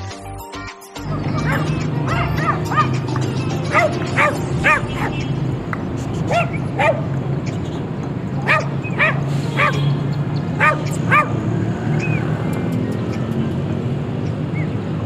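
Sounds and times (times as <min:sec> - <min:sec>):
dog barking: 0:01.4 - 0:02.9, 0:03.7 - 0:05.2, 0:06.3 - 0:07.1, 0:08.4 - 0:09.9, 0:10.6 - 0:11.4.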